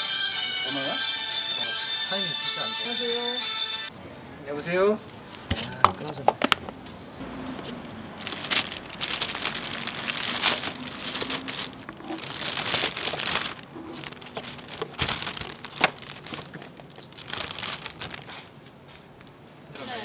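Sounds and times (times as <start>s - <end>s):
plastic bag crinkling: 8.1s - 18.7s.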